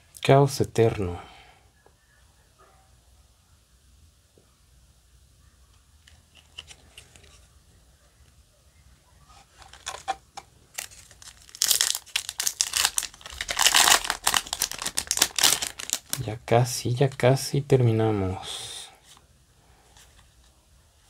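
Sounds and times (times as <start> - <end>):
foil wrapper tearing and crinkling: 9.5 - 16.3.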